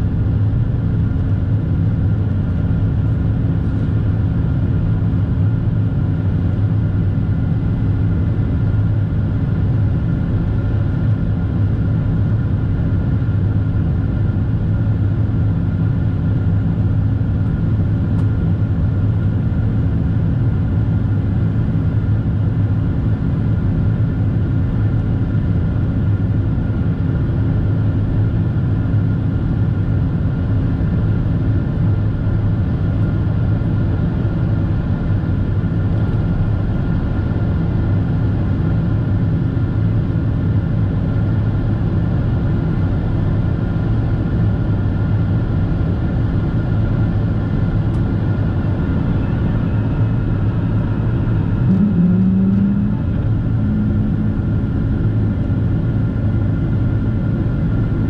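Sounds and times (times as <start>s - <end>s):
airplane cabin roar: 0.0s - 58.0s
low hum: 46.6s - 58.0s.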